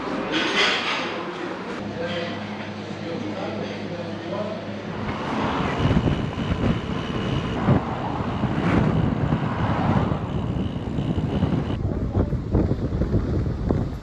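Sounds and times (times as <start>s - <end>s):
thin high whine: 4.8s - 11.8s
wind buffeting microphone: 5.0s - 14.0s.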